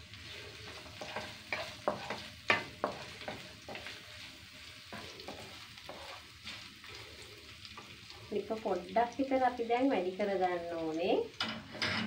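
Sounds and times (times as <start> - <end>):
faint sizzle of frying: 0.0 - 12.0
spatula knocking on frying pan: 1.0 - 3.9.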